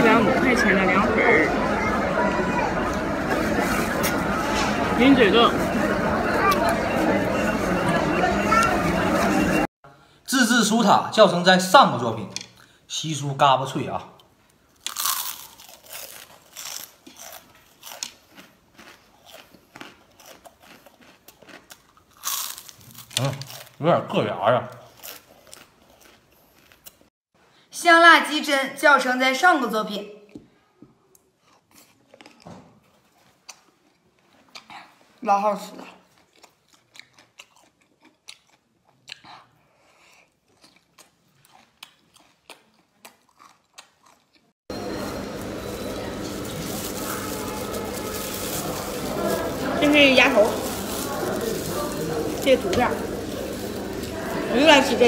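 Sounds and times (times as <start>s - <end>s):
crunching bite and chewing: 14.8s - 23.8s, 24.7s - 27.1s, 31.4s - 35.0s, 36.0s - 44.5s.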